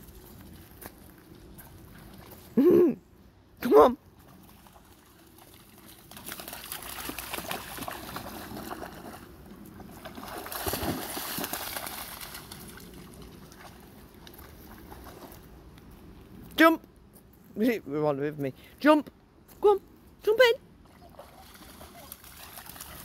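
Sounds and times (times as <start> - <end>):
dog splashing through water: 4.3 - 13.9, 20.9 - 23.0.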